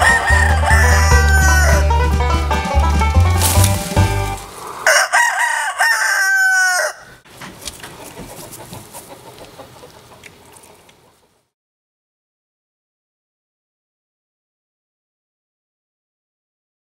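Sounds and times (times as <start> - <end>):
rooster crowing: 0.0 - 2.0, 4.4 - 7.2.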